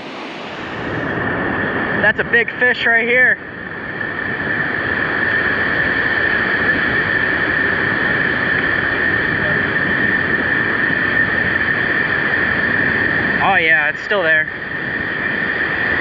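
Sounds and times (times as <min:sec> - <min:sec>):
breaking surf: 0:00.0 - 0:01.0
wind buffeting microphone: 0:00.0 - 0:16.0.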